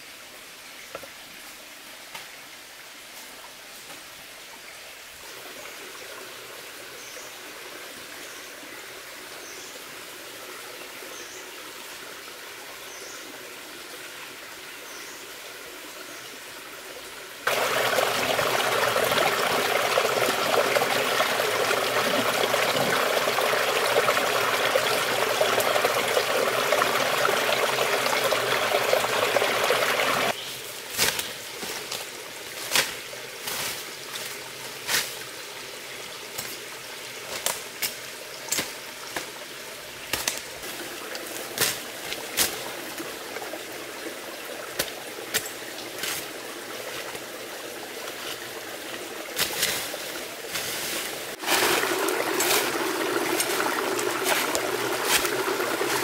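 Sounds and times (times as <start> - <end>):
stream rushing over rocks: 15.9 - 30.4, 32.0 - 56.0.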